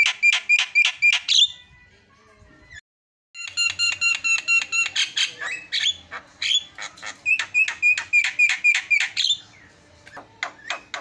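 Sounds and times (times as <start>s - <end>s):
fast repeated sharp bird notes: 0.0s - 1.5s, 3.4s - 9.4s
myna singing imitated calls: 3.4s - 11.0s.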